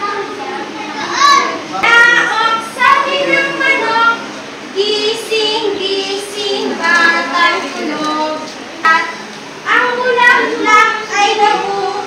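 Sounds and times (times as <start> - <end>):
children singing: 0.0 - 12.0
woman singing: 4.8 - 12.0.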